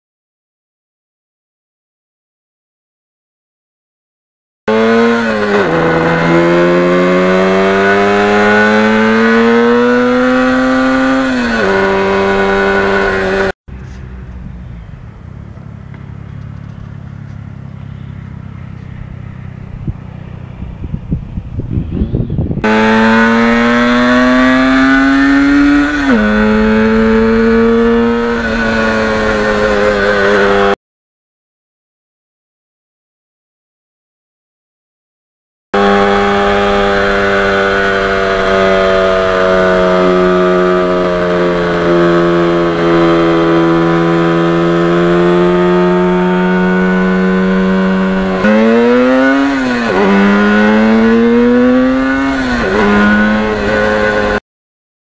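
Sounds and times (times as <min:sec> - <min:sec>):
two-stroke engine revving: 0:04.7 - 0:13.6, 0:22.6 - 0:30.8, 0:35.8 - 0:54.4
engine crackles: 0:13.0 - 0:20.7.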